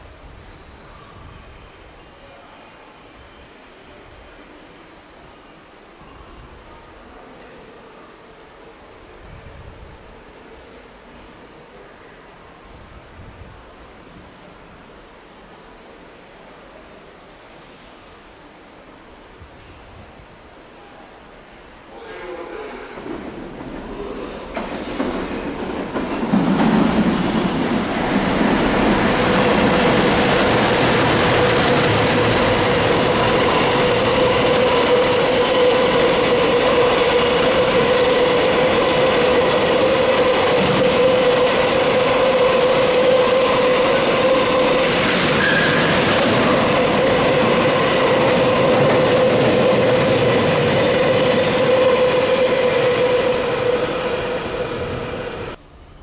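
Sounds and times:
train whine: 20.8 - 56.0
train wheels rumbling on rail: 22.9 - 55.6.

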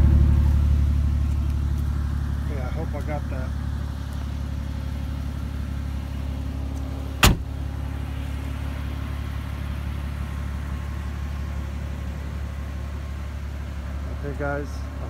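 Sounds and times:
car engine idling: 0.0 - 15.0
sharp knock: 7.2 - 7.4.

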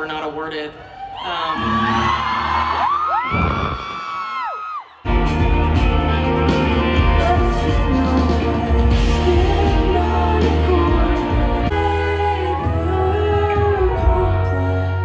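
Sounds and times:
drums: 5.0 - 15.0
bass guitar: 5.1 - 15.0
electric guitars: 5.1 - 15.0.

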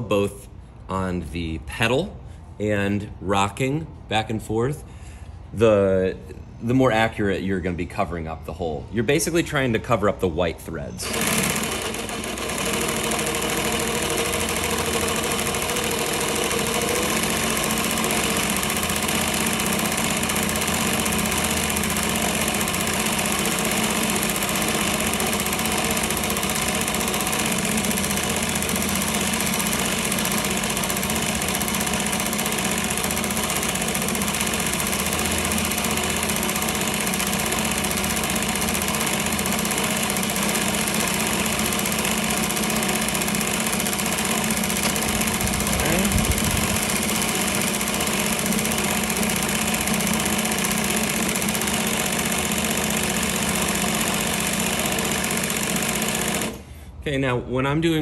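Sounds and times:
sewing machine running: 11.0 - 56.7.

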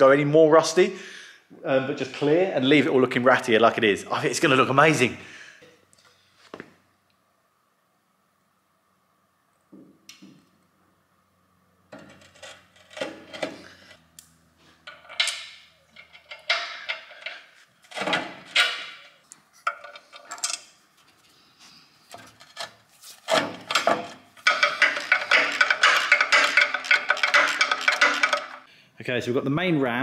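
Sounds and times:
metal clunks and scrapes: 11.9 - 21.4, 22.0 - 28.7.

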